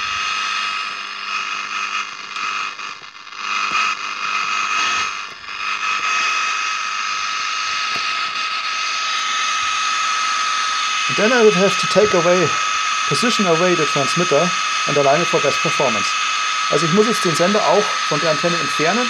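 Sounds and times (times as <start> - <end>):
radio static hiss: 0.0 - 19.0
steady high tone: 10.4 - 19.0.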